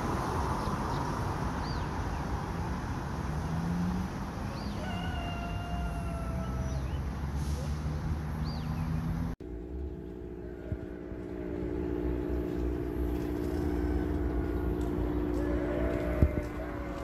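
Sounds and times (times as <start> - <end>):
motor hum: 9.4 - 17.0.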